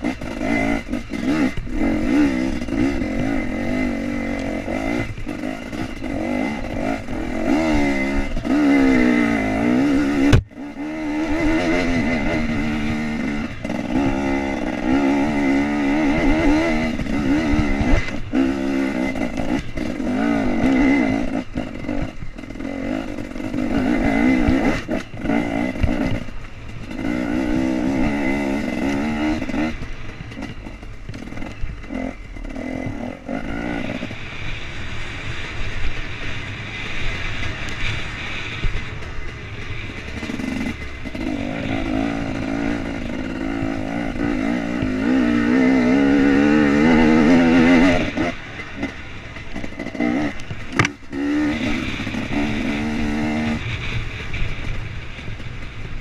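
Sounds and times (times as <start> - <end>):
two-stroke motorcycle revving: 0.0 - 56.0.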